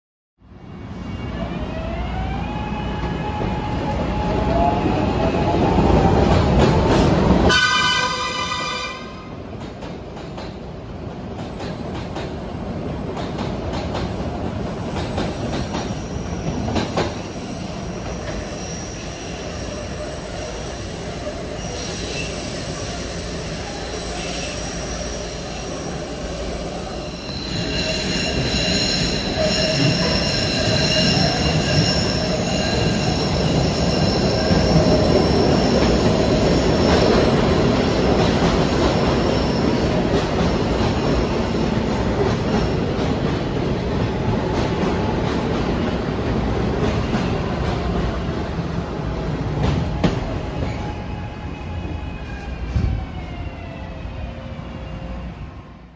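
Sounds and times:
train wheels rumbling on rail: 0:03.0 - 0:54.0
high wheel squeal: 0:15.9 - 0:37.4.

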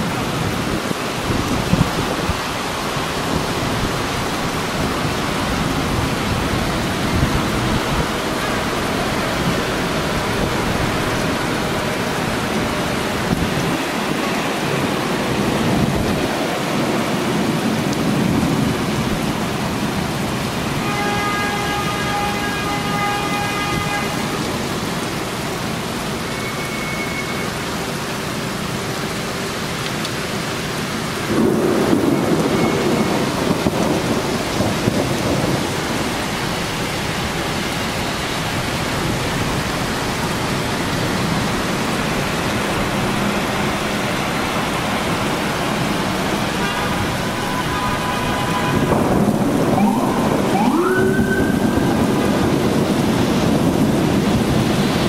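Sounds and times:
thunder rumbling: 0:00.0 - 0:20.9, 0:30.6 - 0:55.0
heavy rain: 0:00.0 - 0:55.0
siren wailing: 0:46.9 - 0:52.7.

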